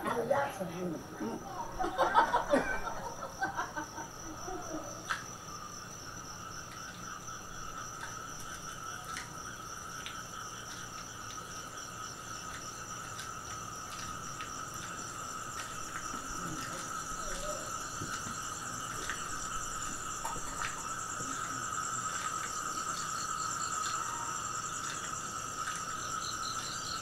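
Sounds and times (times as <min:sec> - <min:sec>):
insects trilling: 0:00.0 - 0:27.0
voices and laughter: 0:01.0 - 0:05.2.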